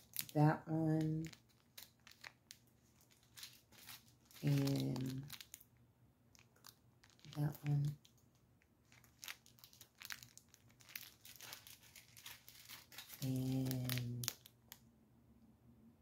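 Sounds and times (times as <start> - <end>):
person speaking: 0.0 - 1.4, 3.7 - 5.4, 7.1 - 8.1, 11.3 - 14.4
plastic packaging crinkling: 0.0 - 14.8.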